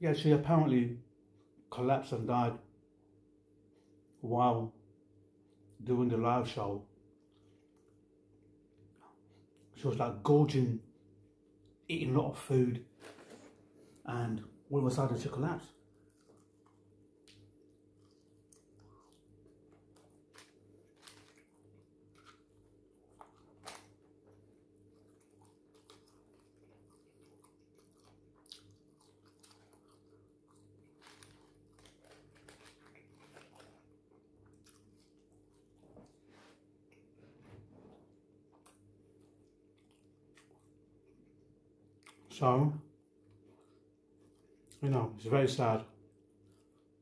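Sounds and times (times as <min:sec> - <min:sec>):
faint steady hum: 0:00.0 - 0:47.0
chewing crunchy food: 0:07.0 - 0:09.8, 0:15.6 - 0:47.0.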